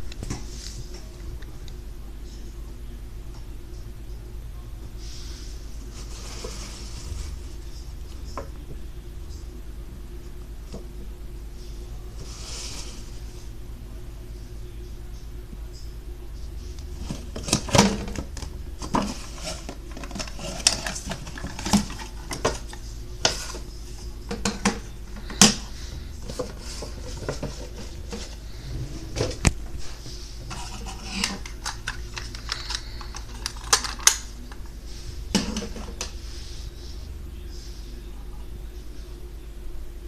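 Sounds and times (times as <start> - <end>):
plastic toy and box clicking: 31.3 - 34.2.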